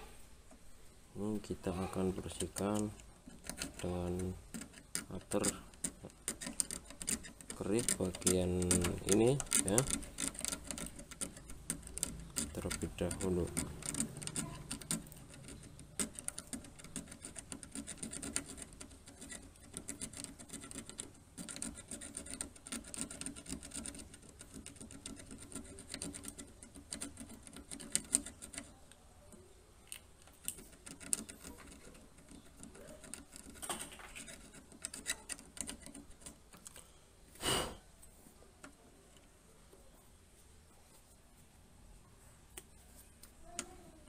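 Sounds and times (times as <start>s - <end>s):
blade scratching circuit board: 2.1s - 28.7s.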